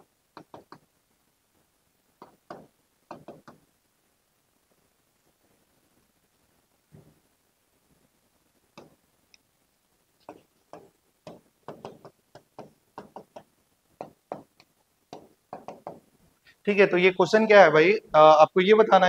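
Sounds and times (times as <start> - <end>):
writing tool tapping on board: 0.4 - 0.9, 2.2 - 3.6, 8.8 - 9.0, 10.2 - 16.0.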